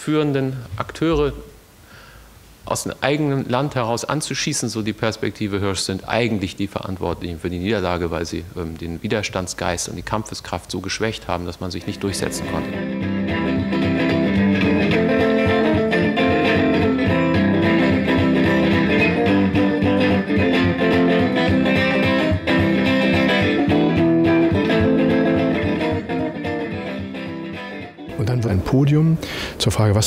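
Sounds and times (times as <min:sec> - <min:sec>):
guitar chords strummed: 0:11.9 - 0:28.4.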